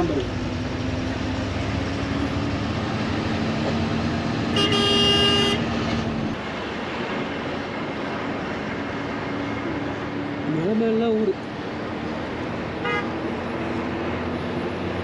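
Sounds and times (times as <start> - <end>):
bus engine hum: 0.0 - 15.0
road noise: 0.0 - 15.0
vehicle horn: 4.5 - 5.7, 12.8 - 13.2.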